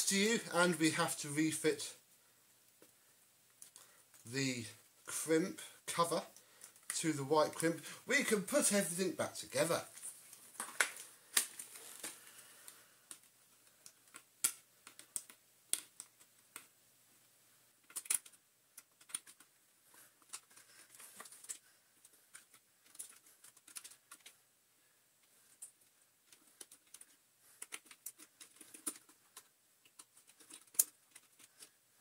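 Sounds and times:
plastic parts clicking: 17.8s - 19.5s, 22.3s - 24.4s, 25.6s - 31.7s.

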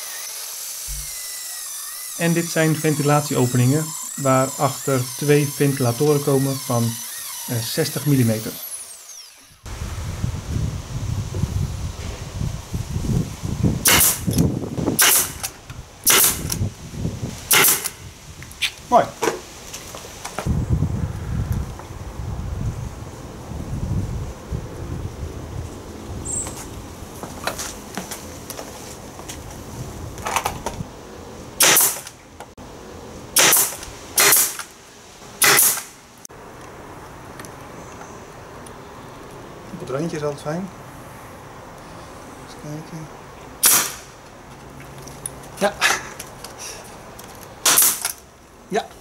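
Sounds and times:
nail gun firing: 0.0s - 9.6s, 13.8s - 14.4s, 15.0s - 16.6s, 17.5s - 18.0s, 31.6s - 32.2s, 33.4s - 34.7s, 35.4s - 36.0s, 43.6s - 44.1s, 47.6s - 48.2s.

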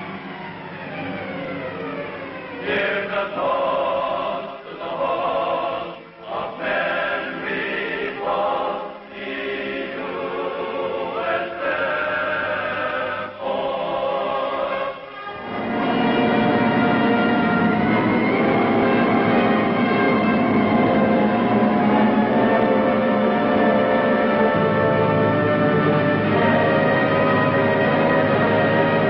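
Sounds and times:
choir singing: 2.5s - 29.0s.

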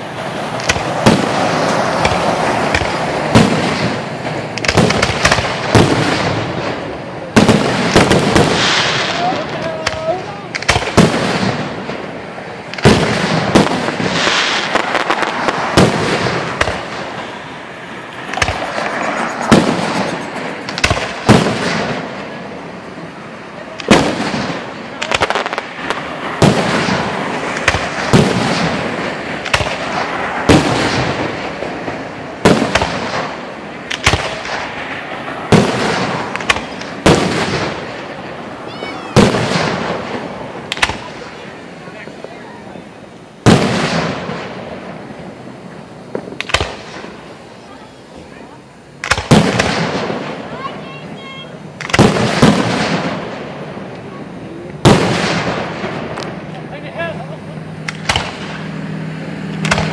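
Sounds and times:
firework shells bursting: 0.0s - 23.0s, 23.7s - 38.5s, 46.1s - 47.3s, 51.8s - 54.1s, 57.8s - 58.7s, 59.5s - 59.9s.

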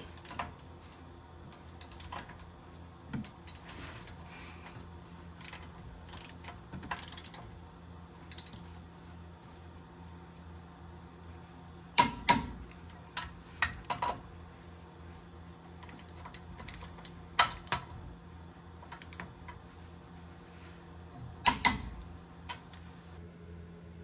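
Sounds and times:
torque wrench clicking: 1.8s - 2.2s, 5.4s - 7.4s, 8.3s - 8.6s, 21.4s - 22.8s.

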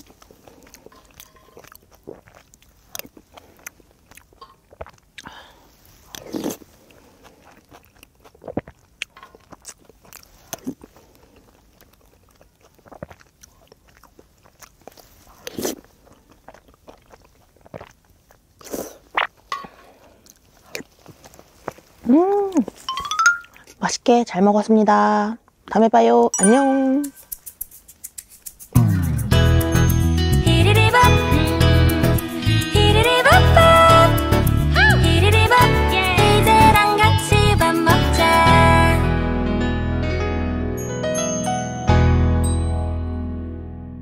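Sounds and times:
chewing and slurping noodles: 0.0s - 22.0s
mouth clicks: 26.6s - 29.1s.

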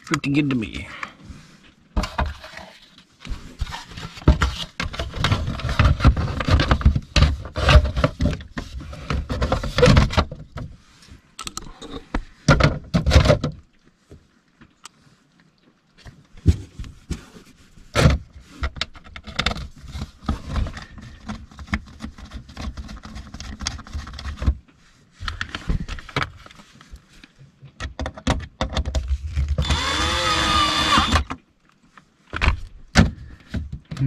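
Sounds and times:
power drill whirring: 29.6s - 31.3s.

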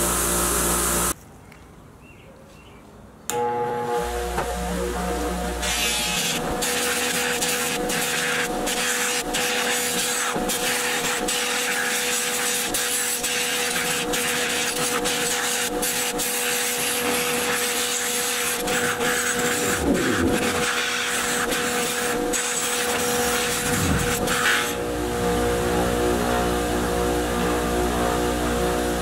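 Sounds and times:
bench buffer motor hum: 0.0s - 1.2s, 3.3s - 29.0s
buffing wheel rasping hiss: 0.0s - 1.2s, 5.2s - 24.8s.

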